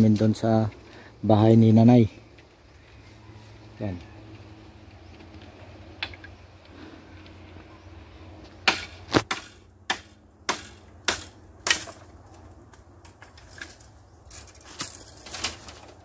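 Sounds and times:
knocks on bamboo: 8.6 - 12.0.

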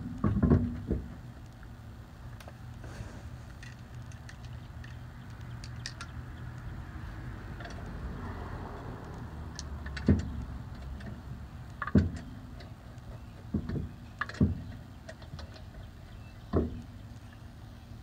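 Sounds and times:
knocks and clunks on car wheel: 0.0 - 1.2, 9.9 - 11.0, 11.8 - 12.4, 13.2 - 15.4, 16.4 - 16.8.

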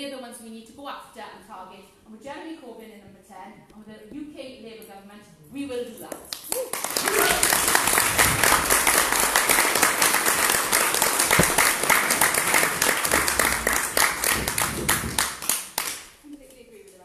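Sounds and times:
audience applause: 6.7 - 16.0.

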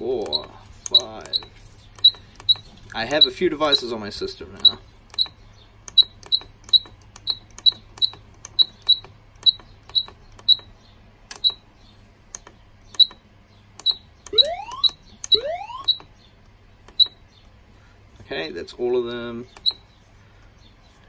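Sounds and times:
keypad beeping: 0.2 - 3.9, 4.6 - 10.7, 11.3 - 11.6, 12.4 - 13.2, 13.8 - 16.1, 19.6 - 19.8
short rising tones: 14.3 - 16.0.

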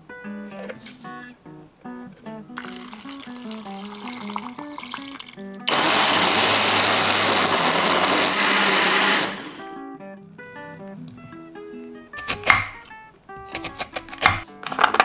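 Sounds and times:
blender running: 4.8 - 9.7.

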